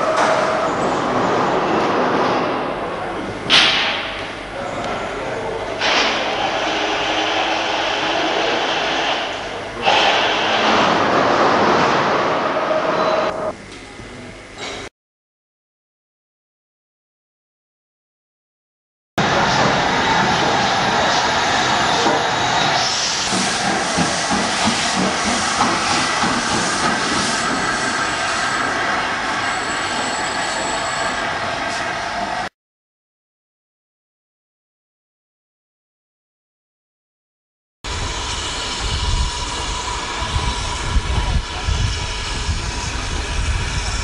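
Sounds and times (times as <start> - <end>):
steam hissing: 5.8 - 13.3, 19.2 - 32.4, 37.9 - 44.0
locomotive chuffing beat: 19.2 - 28.9.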